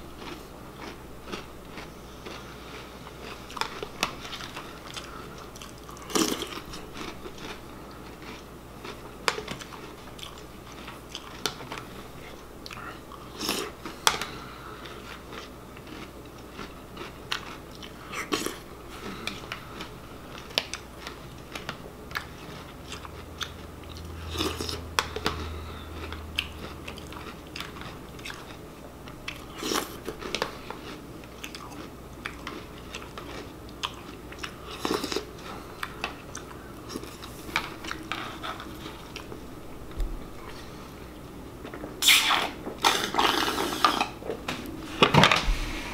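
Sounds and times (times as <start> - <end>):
person chewing crunchy cereal: 0.0 - 45.9
slurping milk: 42.0 - 44.2.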